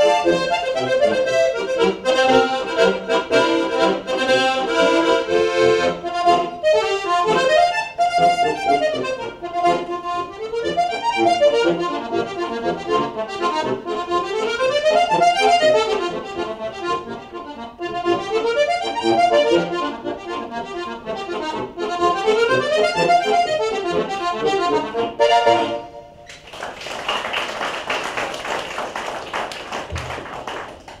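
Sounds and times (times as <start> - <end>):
button accordion playing folk tune: 0.0 - 26.3
applause: 26.3 - 31.0.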